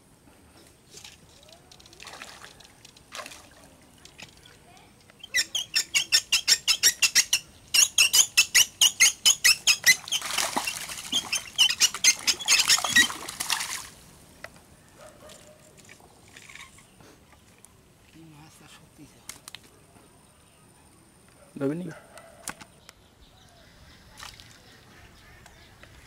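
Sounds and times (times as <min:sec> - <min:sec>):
fish thrashing and splashing: 0:09.9 - 0:13.9.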